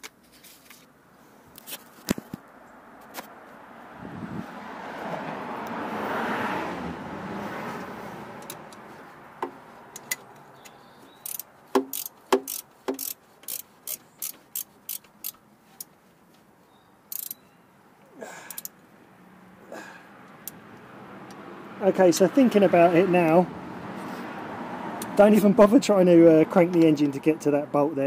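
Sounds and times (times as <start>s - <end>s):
rustling: 0.0s - 3.4s
ratchet spanner clicking: 9.9s - 15.9s, 17.1s - 17.4s, 18.5s - 18.8s.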